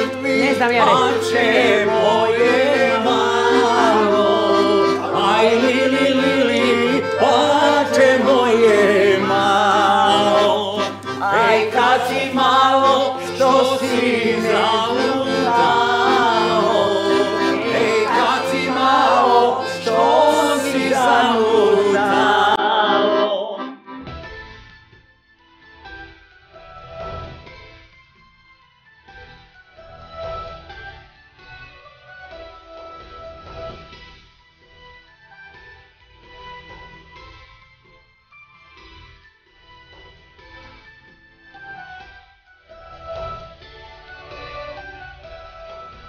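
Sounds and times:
people singing along: 0.0 - 23.7
accordion folk tune: 0.0 - 24.8, 41.1 - 46.0.

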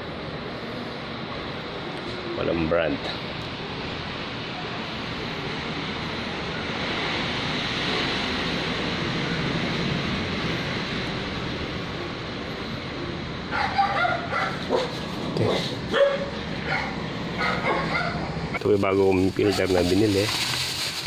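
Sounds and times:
steady rushing noise: 0.0 - 21.0
dog barking: 13.5 - 18.2.

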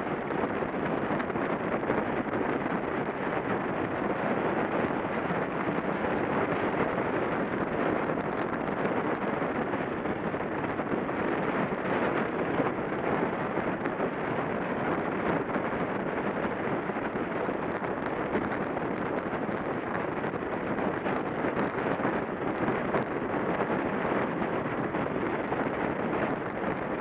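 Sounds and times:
wind rushing on microphone: 0.0 - 27.0.

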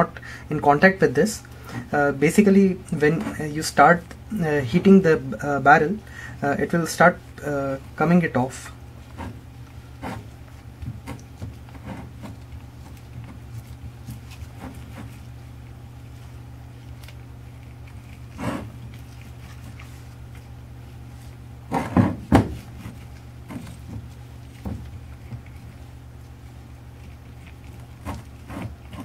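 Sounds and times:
steady low hum: 0.0 - 29.0
gloved hands rubbing mortar: 8.9 - 29.0.

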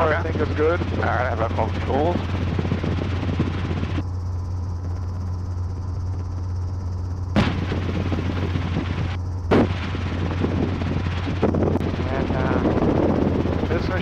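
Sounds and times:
helicopter engine and rotor droning: 0.0 - 14.0
sharp pops: 7.4 - 7.8, 9.5 - 10.0.

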